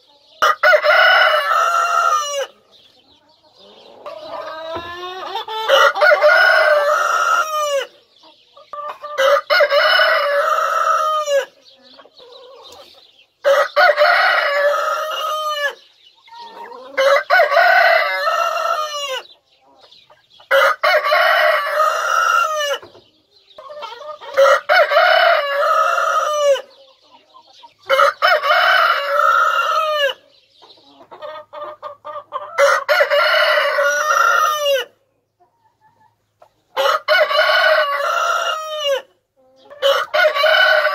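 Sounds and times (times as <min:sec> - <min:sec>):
hens clucking: 0:00.0 - 0:40.9
rooster crowing: 0:00.4 - 0:02.6, 0:05.5 - 0:07.9, 0:13.5 - 0:15.8, 0:16.9 - 0:19.3, 0:24.4 - 0:26.6, 0:32.6 - 0:34.9, 0:36.8 - 0:39.1, 0:39.8 - 0:40.9.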